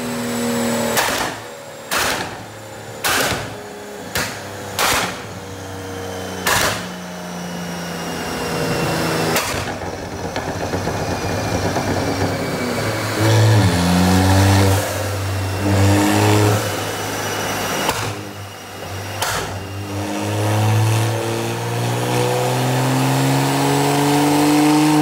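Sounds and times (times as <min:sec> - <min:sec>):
car engine running: 0:00.0 - 0:25.0
loud exhaust bangs: 0:00.9 - 0:05.6, 0:06.4 - 0:07.1, 0:08.3 - 0:18.4
exhaust crackle: 0:08.0 - 0:21.2.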